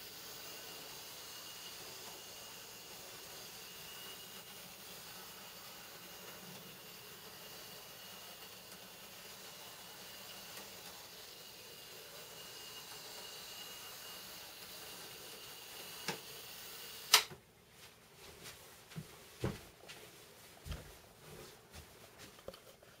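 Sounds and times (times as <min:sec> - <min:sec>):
model train motor whirring: 0:00.0 - 0:17.3
sharp click: 0:17.1 - 0:17.4.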